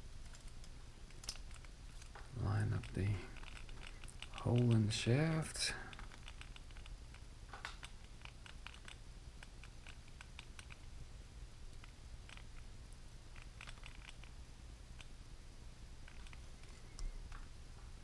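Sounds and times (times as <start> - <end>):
small clicks and taps of parts: 0.2 - 4.9, 5.8 - 10.9, 11.7 - 14.3, 16.0 - 18.0.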